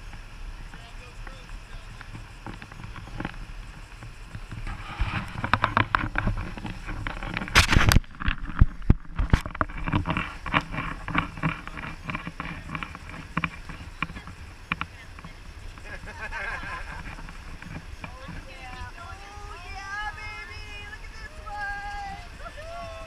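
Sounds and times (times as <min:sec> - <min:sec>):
low steady rumble: 0:00.0 - 0:23.0
water lapping against raft: 0:00.0 - 0:23.0.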